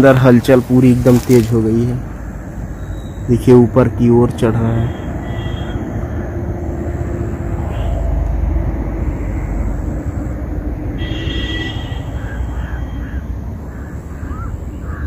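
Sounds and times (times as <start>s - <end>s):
crow cawing: 4.8s - 8.2s, 11.0s - 15.0s
low rumble: 5.8s - 11.0s.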